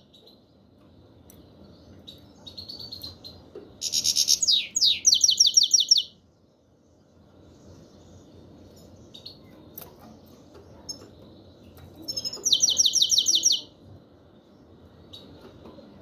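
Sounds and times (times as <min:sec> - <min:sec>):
goldfinch chirping: 0:02.1 - 0:06.1, 0:12.0 - 0:13.7.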